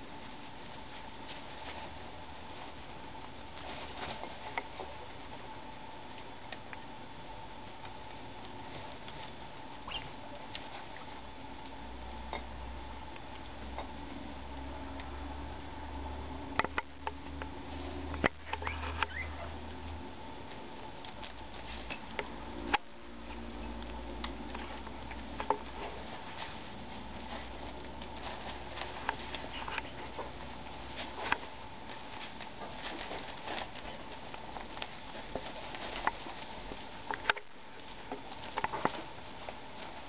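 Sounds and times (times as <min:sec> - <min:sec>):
animals rustling in wood shavings: 0:00.0 - 0:40.0.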